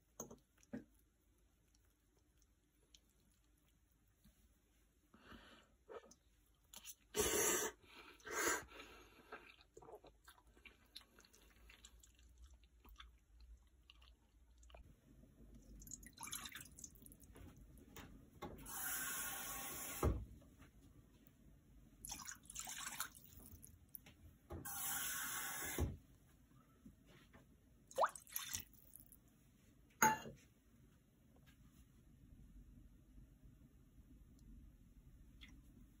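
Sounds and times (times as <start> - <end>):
water pouring into a pan: 22.1 - 23.4.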